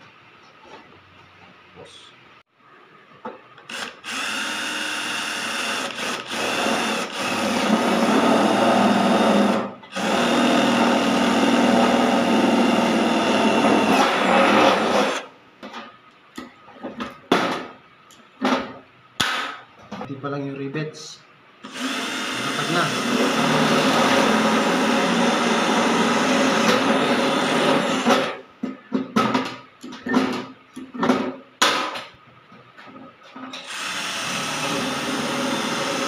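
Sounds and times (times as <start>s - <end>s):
cordless drill boring through sheet metal: 3.7s - 15.3s, 21.6s - 28.4s, 33.6s - 36.0s.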